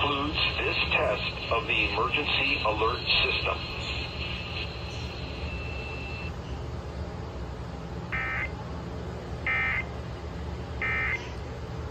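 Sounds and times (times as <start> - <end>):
steady low hum: 0.0 - 11.9
warbling digital data tones: 2.7 - 6.3.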